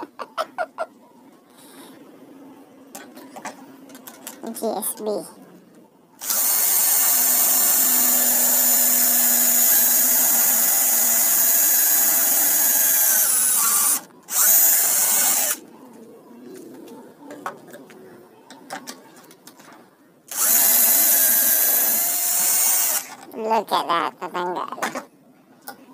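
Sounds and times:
cordless drill whining: 6.2s - 15.6s, 20.3s - 23.1s.

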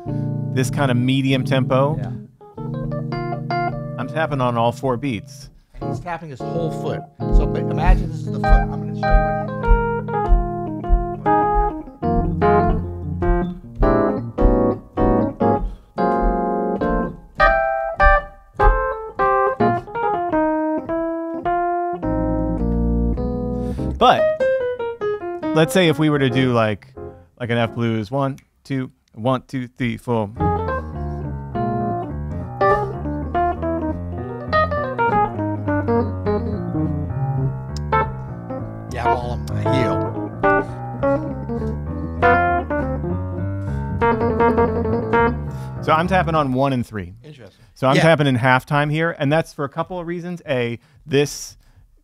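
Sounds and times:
jazz blues piano: 0.0s - 28.0s, 30.4s - 46.6s
low beat thump: 5.5s - 20.0s, 35.0s - 43.2s.

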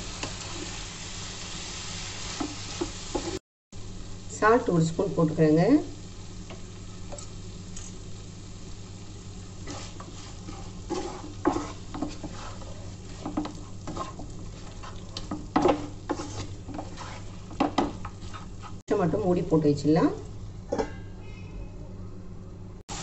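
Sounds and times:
low sizzle: 0.0s - 23.0s
wooden spatula scraping frying pan: 9.6s - 18.8s.

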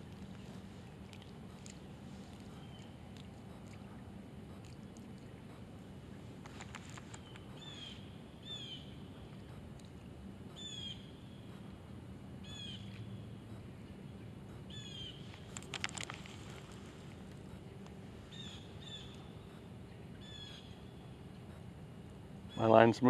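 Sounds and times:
faint outdoor background: 0.0s - 23.0s
bird calling: 6.8s - 9.4s, 10.5s - 11.6s, 12.4s - 21.4s.

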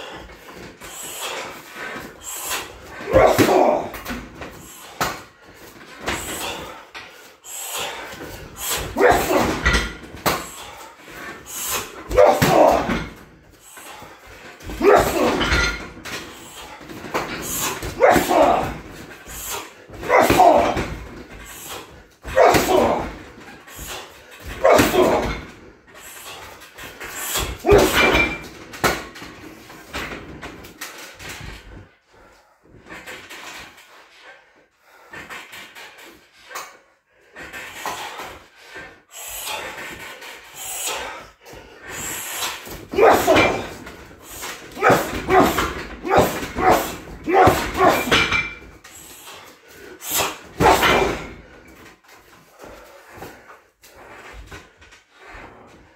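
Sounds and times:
harsh voice-like cry: 3.1s - 4.0s, 9.0s - 9.8s, 12.1s - 13.1s, 14.7s - 15.6s, 18.0s - 18.9s, 20.0s - 20.9s, 22.3s - 23.2s, 24.6s - 25.4s, 27.6s - 28.2s, 42.9s - 43.7s, 44.8s - 48.3s.

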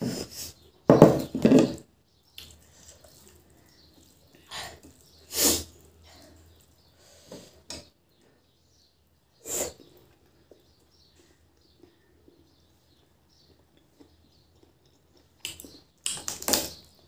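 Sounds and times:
fingers mixing rice in steel plate: 2.4s - 5.3s
sharp sniffs: 4.6s - 6.3s, 9.4s - 9.9s.

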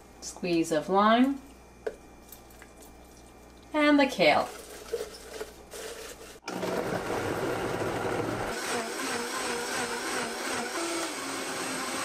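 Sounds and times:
blender running: 5.7s - 12.0s.

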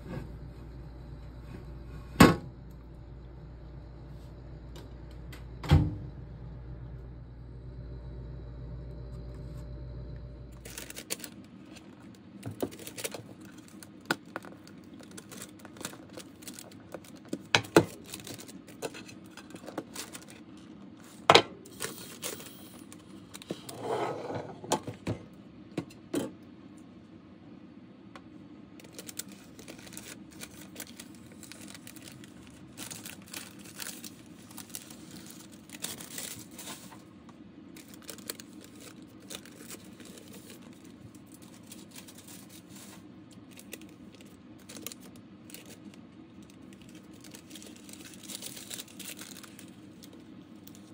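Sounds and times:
steady low hum: 0.0s - 50.9s
baking paper crinkling: 10.6s - 23.7s, 28.8s - 50.9s.

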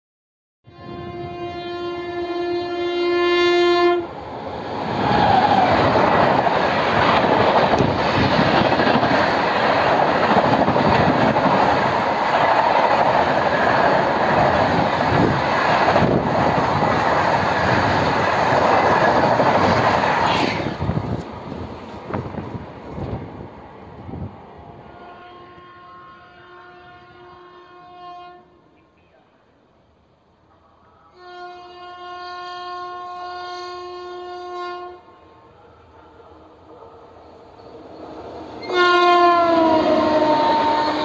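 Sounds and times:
train horn: 0.6s - 4.2s, 24.8s - 28.8s, 30.9s - 35.4s, 38.6s - 41.0s.

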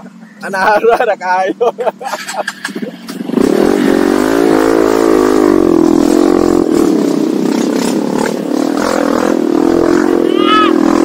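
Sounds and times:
motorcycle engine revving: 2.0s - 11.0s.

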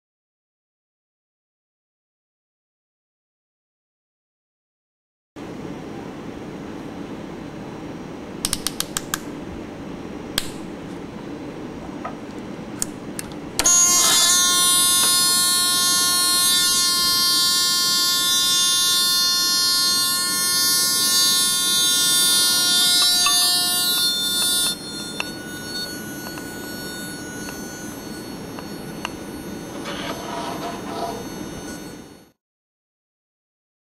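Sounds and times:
high-pitched electronic buzzer tone: 13.6s - 32.4s.

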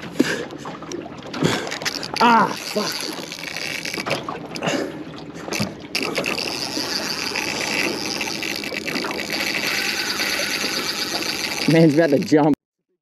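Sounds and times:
water noise: 0.0s - 12.6s
wind: 0.0s - 12.6s
fishing reel drag buzzing: 1.8s - 4.2s, 5.5s - 12.6s.

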